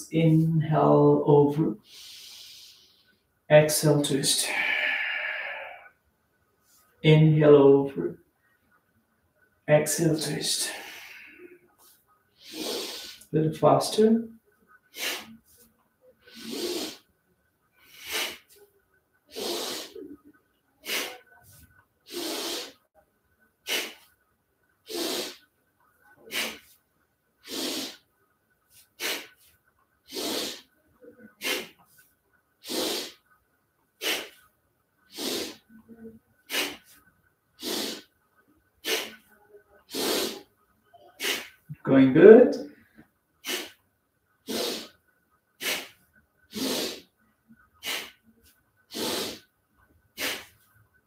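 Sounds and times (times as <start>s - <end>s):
person breathing hard: 1.8s - 3.2s, 4.4s - 6.0s, 10.6s - 13.3s, 14.9s - 15.6s, 16.2s - 17.0s, 17.8s - 18.6s, 19.3s - 20.2s, 20.8s - 21.2s, 22.1s - 22.8s, 23.6s - 24.1s, 26.2s - 26.8s, 27.4s - 28.0s, 28.7s - 29.5s, 30.1s - 30.7s, 31.4s - 32.0s, 32.6s - 33.2s, 34.0s - 34.4s, 35.1s - 35.7s, 36.4s - 37.0s, 38.8s - 39.2s, 41.2s - 41.6s, 43.4s - 43.8s, 44.4s - 45.0s, 45.6s - 47.1s, 47.8s - 49.5s, 50.1s - 50.7s.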